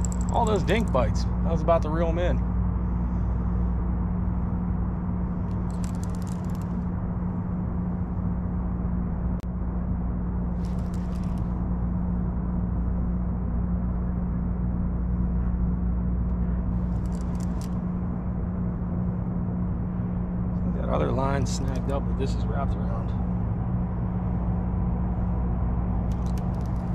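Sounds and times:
fishing reel whirring: 0:00.0 - 0:01.0, 0:05.5 - 0:06.8
low mechanical hum: 0:00.0 - 0:26.9.

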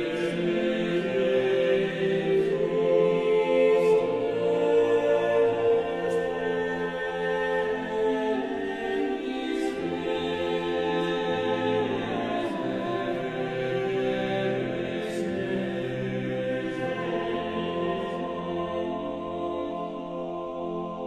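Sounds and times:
choir-like voices: 0:00.0 - 0:21.0.

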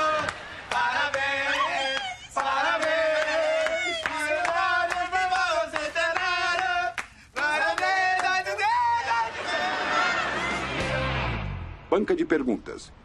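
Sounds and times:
group singing birthday song: 0:00.0 - 0:11.2
hand clapping: 0:00.2 - 0:08.6.

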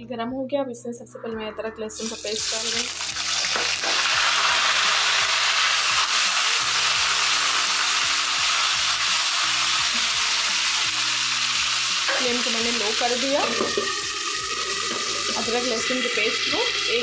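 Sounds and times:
paste sizzling in hot oil: 0:02.0 - 0:17.0.

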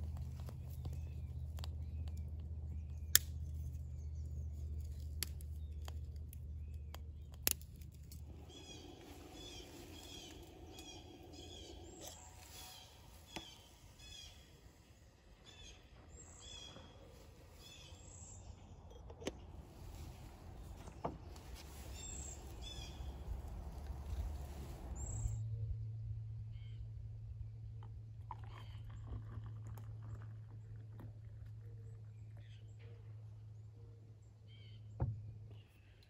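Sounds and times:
fire burning in camp stove: 0:00.0 - 0:14.4, 0:19.7 - 0:25.4
small birds chirping: 0:00.0 - 0:25.4
fire crackles: 0:04.6 - 0:14.5, 0:19.6 - 0:25.4.

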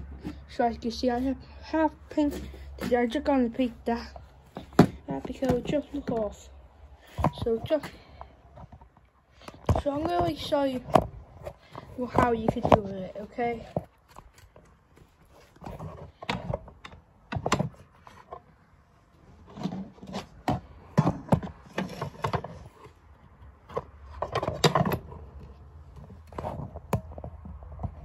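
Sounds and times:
objects knocking and clattering: 0:03.8 - 0:06.4, 0:19.4 - 0:28.0.

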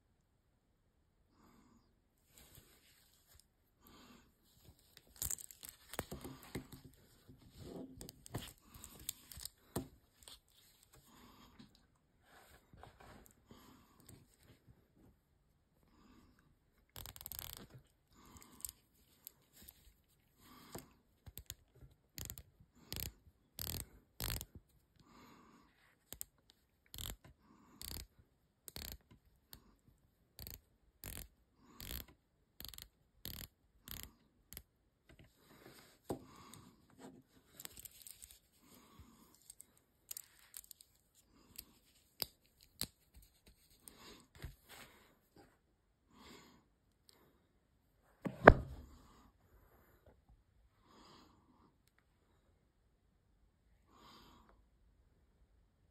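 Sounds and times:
watch bezel ratcheting clicks: 0:17.0 - 0:17.6, 0:22.2 - 0:24.4, 0:26.9 - 0:27.2, 0:27.8 - 0:28.1, 0:28.7 - 0:29.0, 0:30.4 - 0:34.6.

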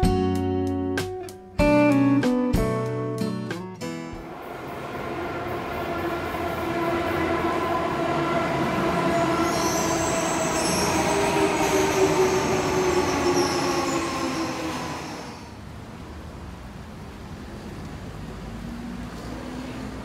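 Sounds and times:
subway train whine: 0:04.2 - 0:17.7
high-pitched wheel squeal: 0:04.7 - 0:15.6.

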